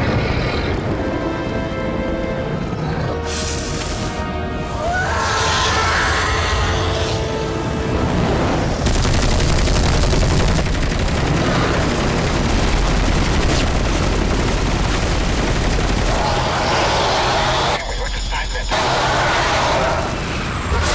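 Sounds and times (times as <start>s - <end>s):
film music score: 0.0s - 20.9s
rapid cannon fire: 8.8s - 16.5s.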